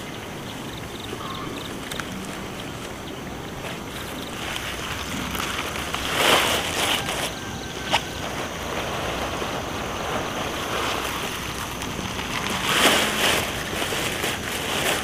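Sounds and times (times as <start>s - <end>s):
steady windy hiss: 0.0s - 15.0s
onion bunches and sacks rustling: 3.5s - 15.0s.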